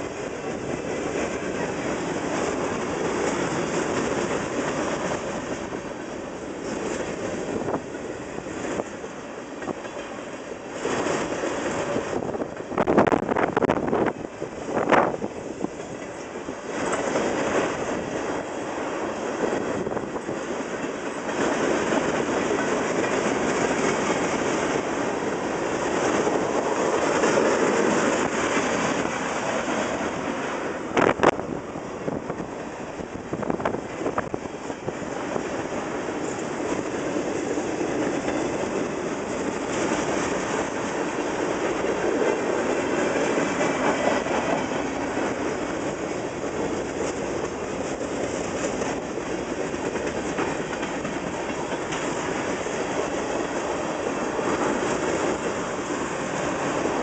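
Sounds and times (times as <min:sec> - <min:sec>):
train car clanks: 0:00.0 - 0:14.2, 0:33.4 - 0:57.0
train wheels clicking on rail joints: 0:00.0 - 0:57.0.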